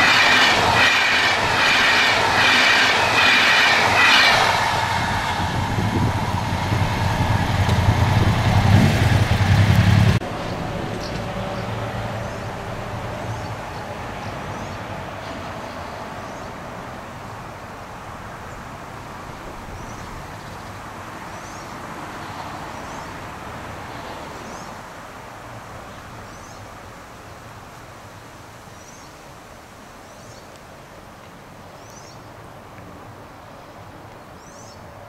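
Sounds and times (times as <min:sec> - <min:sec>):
locomotive rumbling: 0:00.0 - 0:17.2.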